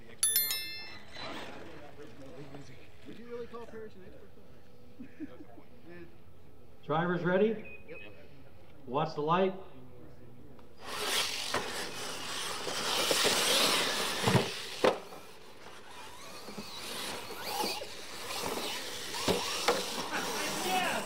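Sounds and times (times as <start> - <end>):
electric motors whining: 10.6 - 21.0
tyres scrabbling and spraying dirt: 10.8 - 21.0
toy truck landing with thuds: 12.6 - 15.3, 16.4 - 20.1.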